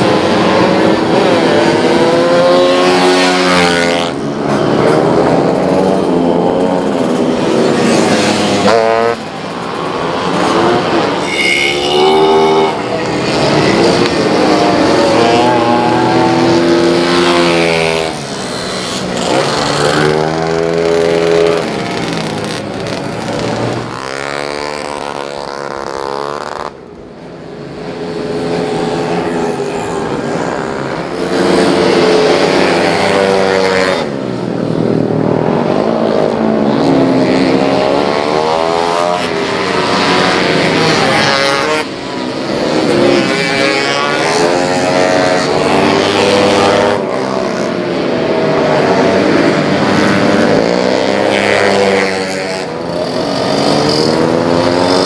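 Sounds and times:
scooter engines revving past: 0.0 - 55.0.

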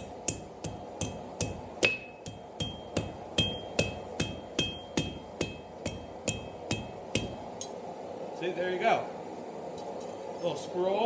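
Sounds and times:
hammer striking metal on anvil: 0.0 - 7.8
anvil ringing: 0.3 - 7.4.

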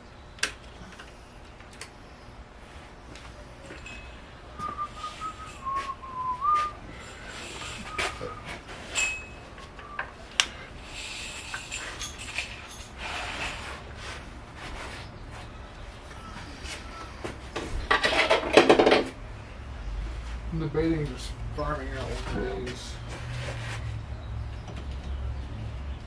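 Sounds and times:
person whistling: 4.6 - 8.6.

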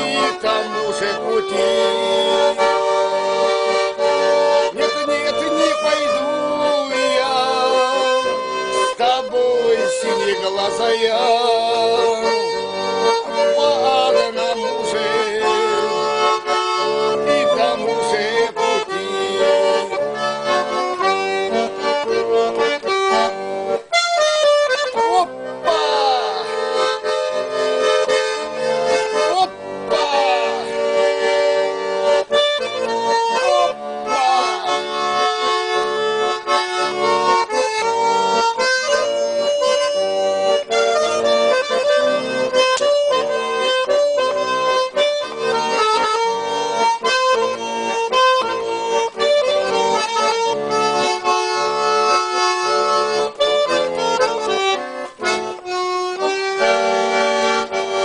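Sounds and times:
button accordion melody: 0.0 - 58.0.

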